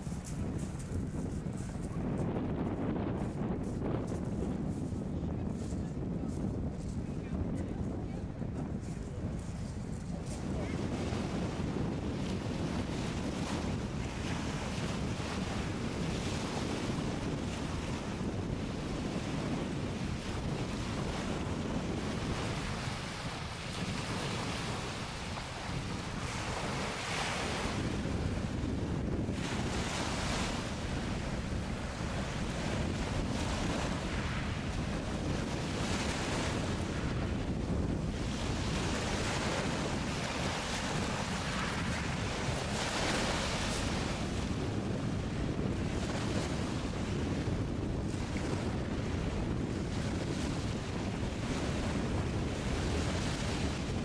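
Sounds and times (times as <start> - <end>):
wind buffeting the microphone: 0.0 - 54.0
waves washing onto shingle: 20.1 - 44.8.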